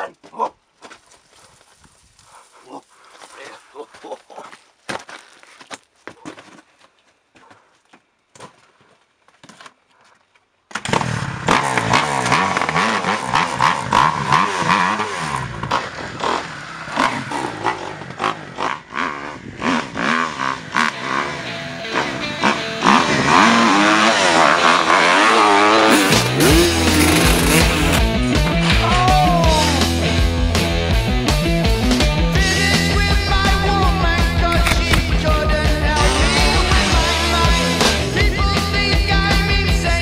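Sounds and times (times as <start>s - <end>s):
faint scuffing on rock: 0.2s - 10.5s
dirt bike engine revving: 10.8s - 40.0s.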